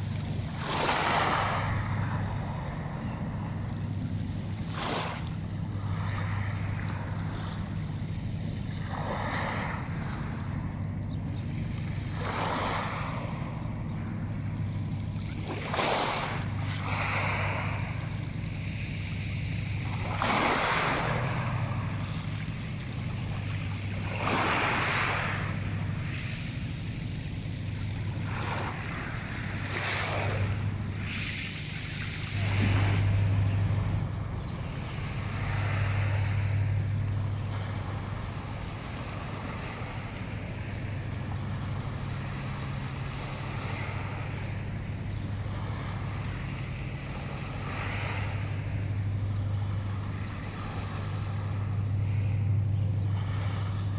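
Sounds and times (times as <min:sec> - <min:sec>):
waves washing on pebble shore: 0:00.0 - 0:02.1
steady low hum: 0:00.0 - 0:53.9.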